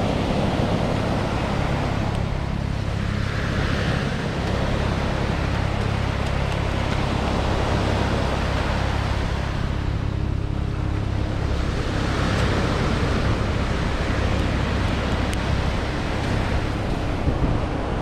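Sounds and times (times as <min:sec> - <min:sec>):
surf washing on beach: 0:00.0 - 0:18.0
wind buffeting microphone: 0:00.0 - 0:18.0.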